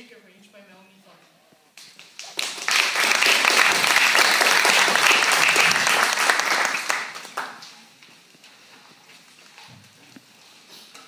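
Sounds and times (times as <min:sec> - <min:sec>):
audience applauding: 0:02.0 - 0:07.8.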